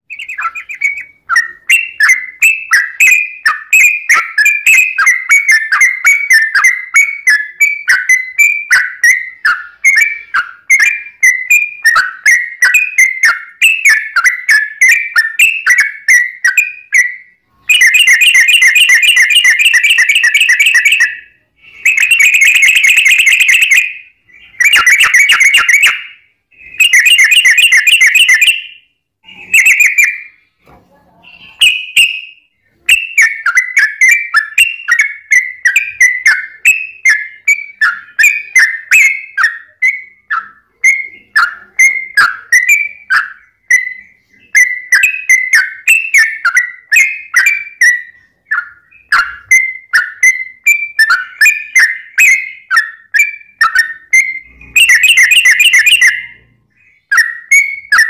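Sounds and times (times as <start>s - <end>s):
bird chirps: 0.0s - 58.0s
bird trills: 0.1s - 30.5s, 31.2s - 58.0s.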